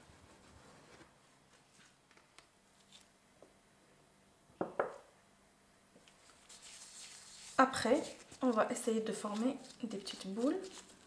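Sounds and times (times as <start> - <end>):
handling bread dough: 6.0 - 11.0.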